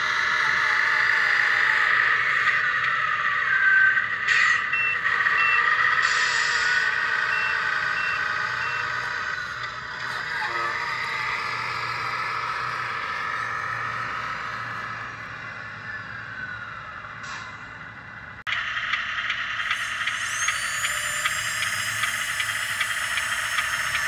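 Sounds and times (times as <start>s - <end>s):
simulated diesel engine from speaker: 0.0s - 24.0s
reversing beeps: 2.5s - 9.7s, 19.6s - 24.0s.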